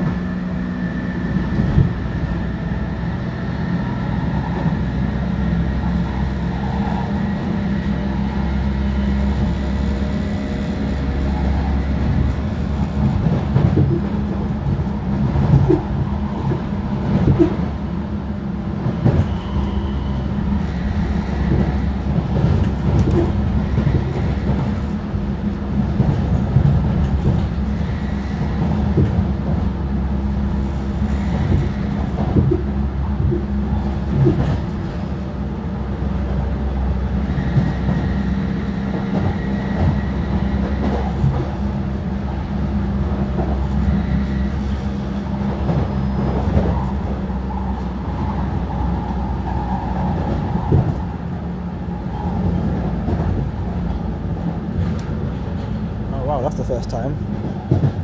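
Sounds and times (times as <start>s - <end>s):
train wheel and rail rumble: 0.0s - 58.0s.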